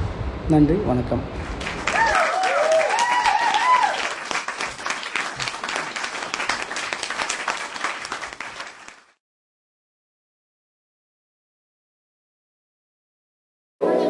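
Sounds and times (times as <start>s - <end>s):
crowd applause: 1.4s - 9.2s
crowd cheering: 1.4s - 9.2s.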